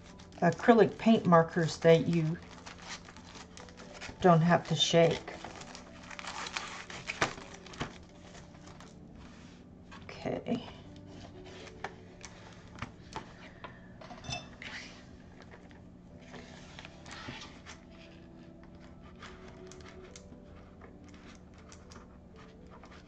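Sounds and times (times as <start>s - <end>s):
cellophane rustling: 0.0s - 10.2s, 10.8s - 23.0s.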